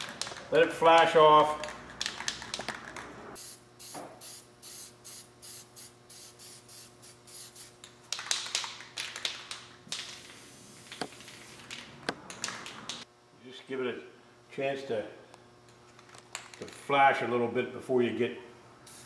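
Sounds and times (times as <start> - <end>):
aerosol spray can hissing: 3.4 - 7.8.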